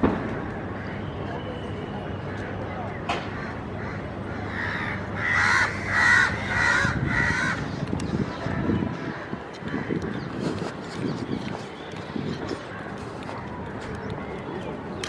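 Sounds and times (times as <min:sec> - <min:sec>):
crow cawing: 0:03.3 - 0:07.7.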